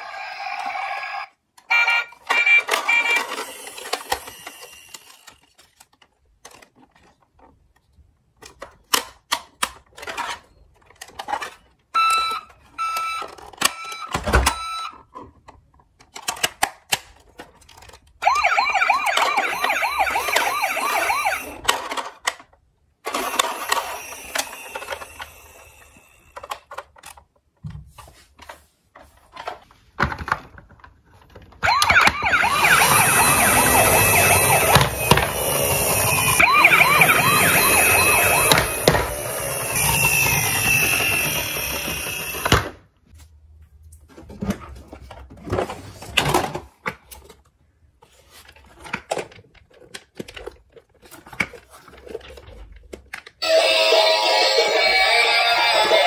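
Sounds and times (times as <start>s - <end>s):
toy electronic siren: 0.0s - 5.3s, 12.0s - 14.9s, 18.2s - 21.8s, 23.2s - 26.2s, 31.6s - 42.7s, 53.4s - 56.0s
plastic toy clicks and knocks: 8.4s - 11.8s, 12.9s - 18.2s, 21.5s - 27.4s, 48.6s - 53.4s.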